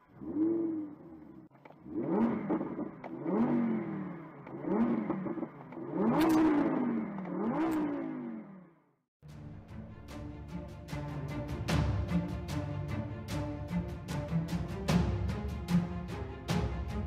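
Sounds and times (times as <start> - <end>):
car engine revving: 0.0 - 8.9.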